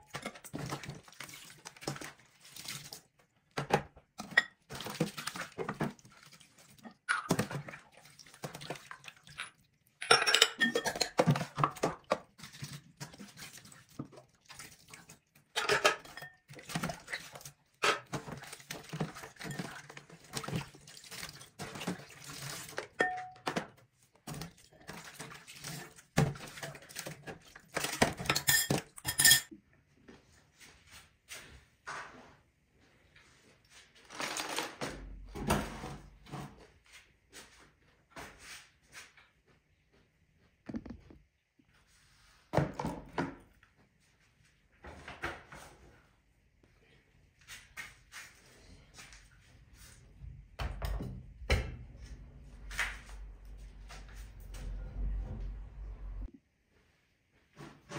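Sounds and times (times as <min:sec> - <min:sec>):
water pouring and splashing: 0:00.2 - 0:03.3, 0:04.7 - 0:09.8, 0:11.1 - 0:23.0, 0:24.2 - 0:28.6
glass bowls and lids clinking: 0:09.3 - 0:11.8, 0:15.6 - 0:16.5, 0:23.0 - 0:23.6, 0:28.2 - 0:29.5.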